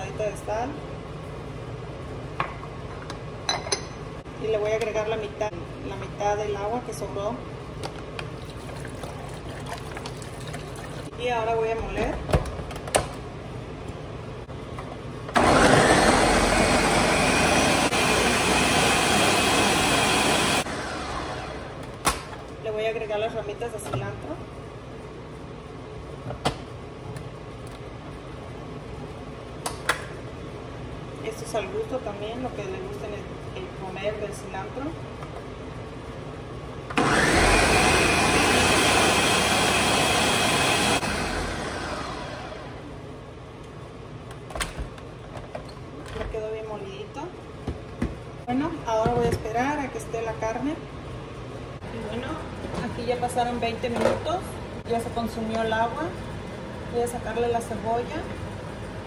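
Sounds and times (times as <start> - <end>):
blender running at high speed: 15.4 - 21.8, 37.0 - 42.8.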